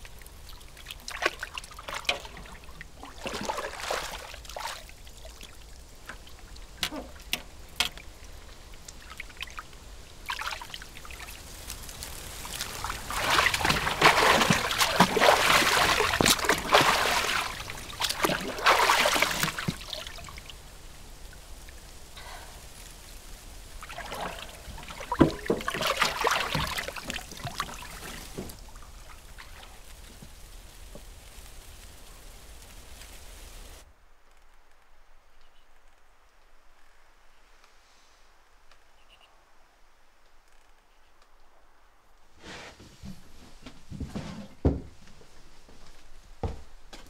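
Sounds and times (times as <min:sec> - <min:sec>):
bathwater splashing: 0:00.0 - 0:20.7, 0:23.4 - 0:31.8.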